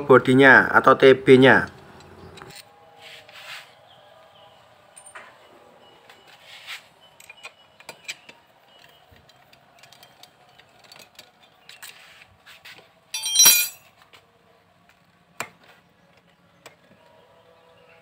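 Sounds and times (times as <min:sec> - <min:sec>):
ringing metallic jangle: 0:13.2 - 0:13.8
hand tools and metal parts clinking: 0:13.2 - 0:13.9.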